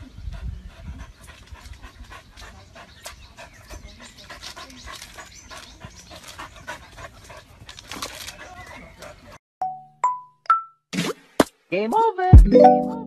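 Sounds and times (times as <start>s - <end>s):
dog panting: 0.0s - 9.4s.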